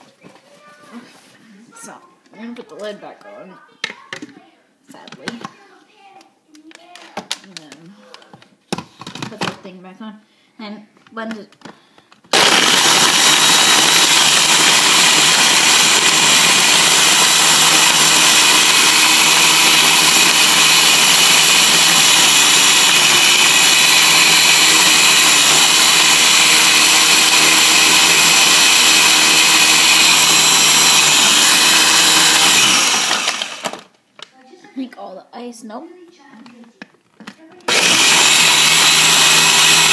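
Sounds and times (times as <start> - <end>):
blender motor running: 12.3 - 33.9, 37.7 - 39.9.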